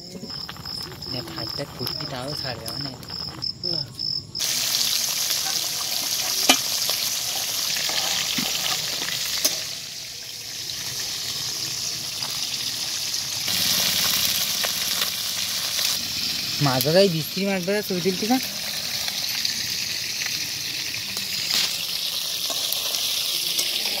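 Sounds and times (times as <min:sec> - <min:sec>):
fish frying in hot oil: 0:00.1 - 0:03.5, 0:04.4 - 0:24.0.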